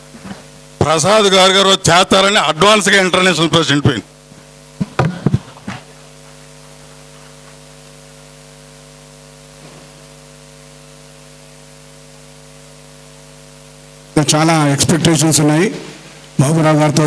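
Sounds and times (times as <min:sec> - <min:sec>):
electrical mains hum with hiss: 0:00.0 - 0:17.0.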